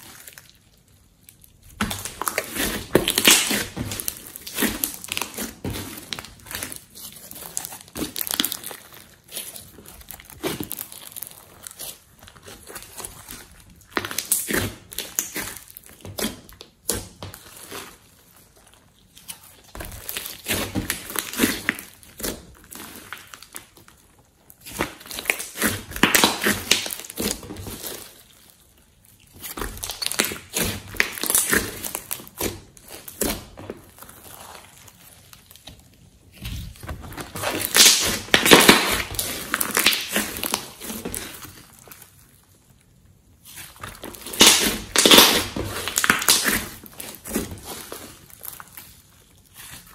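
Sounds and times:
slime crackling and popping: 0.0s - 49.9s.

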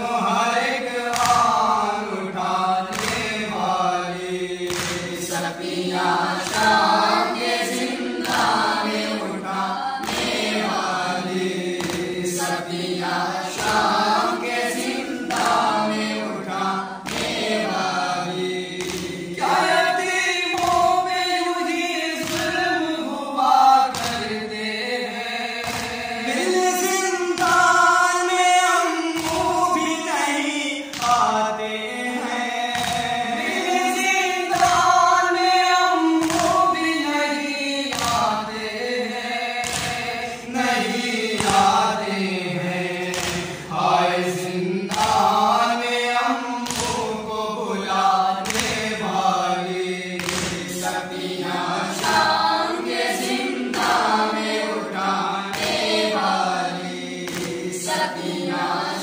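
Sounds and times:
men chanting together: 0.0s - 59.0s
soft rhythmic thump: 4.5s - 9.1s, 10.0s - 21.2s, 25.6s - 26.2s, 39.6s - 42.2s, 46.6s - 47.4s, 50.1s - 50.8s.

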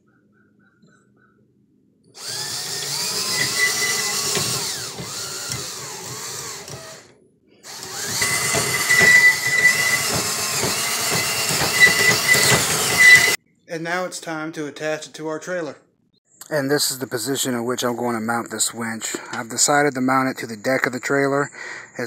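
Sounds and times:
cordless drill driving winch: 2.2s - 13.4s.

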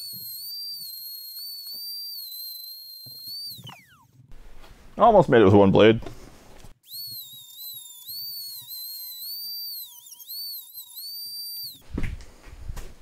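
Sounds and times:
rotary tool whining: 0.0s - 4.3s, 6.7s - 11.8s.

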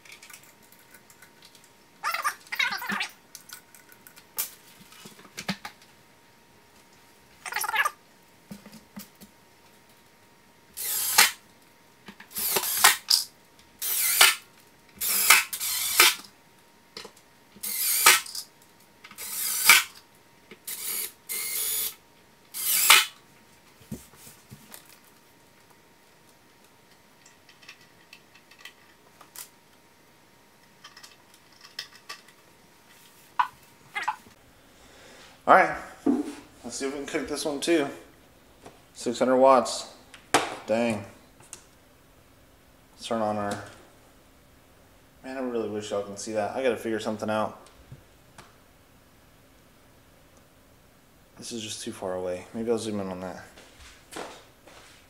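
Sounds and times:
cordless drill driving screws: 10.8s - 11.4s, 12.3s - 13.2s, 13.8s - 14.4s, 15.0s - 16.2s, 17.6s - 18.4s, 19.2s - 19.9s, 20.7s - 21.9s, 22.6s - 23.1s.

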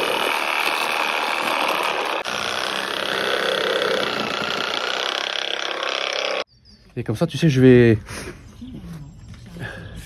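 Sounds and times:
reciprocating saw cutting timber: 0.0s - 6.5s.

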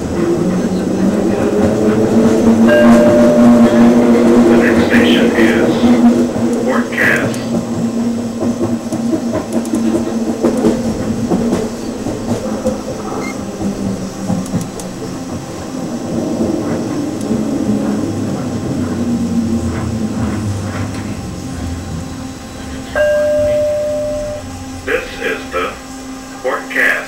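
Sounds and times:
wheels rumbling on rail: 0.0s - 27.0s
steady electronic tone: 23.0s - 26.4s.

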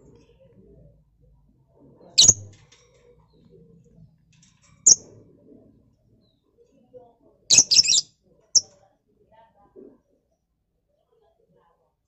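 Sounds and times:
lovebirds chirping: 2.2s - 2.5s, 7.5s - 8.0s.

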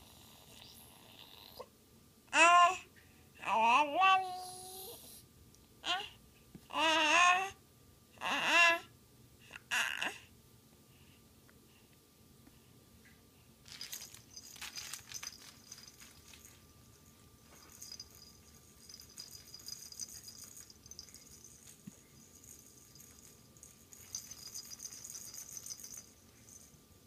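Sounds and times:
toy rattle jingling: 13.7s - 26.8s.

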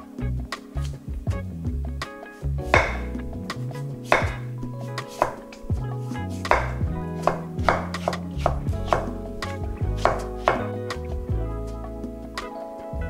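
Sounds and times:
soft background music: 0.0s - 13.0s
knife knocking on cutting board: 2.8s - 3.1s, 4.1s - 4.5s, 6.5s - 9.1s, 10.0s - 10.7s.

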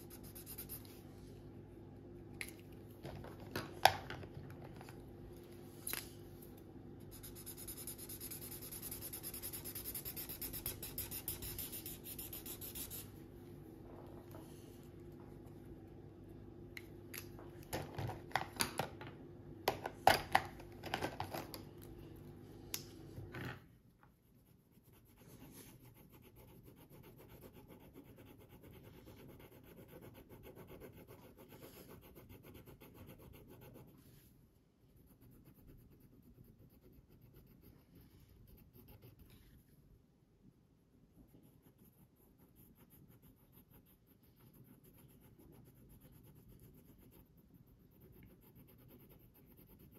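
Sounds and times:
marker scribbling on paper: 0.0s - 1.0s, 7.2s - 13.1s.

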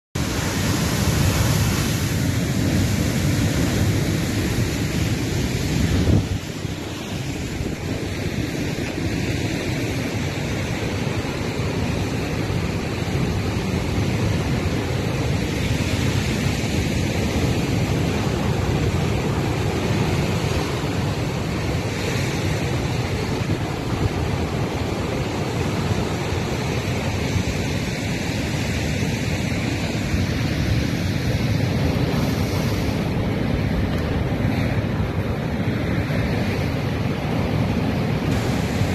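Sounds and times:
surf breaking on rocks: 0.2s - 38.9s
wind buffeting microphone: 0.2s - 38.9s.

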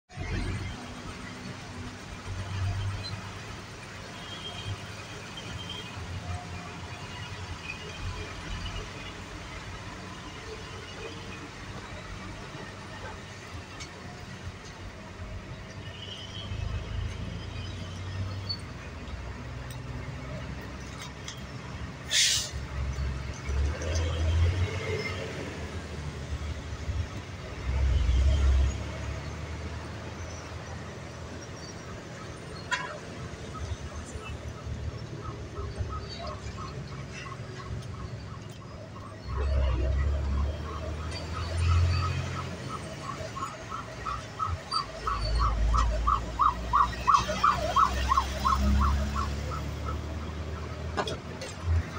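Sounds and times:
vehicle engine and road noise: 0.0s - 51.9s
traffic noise: 0.1s - 51.9s
pulsing emergency siren: 30.2s - 51.9s.

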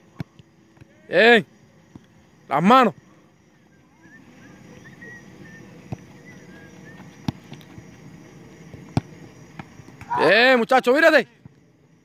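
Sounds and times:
low outdoor background: 0.0s - 12.0s
balls being kicked: 7.0s - 10.3s.

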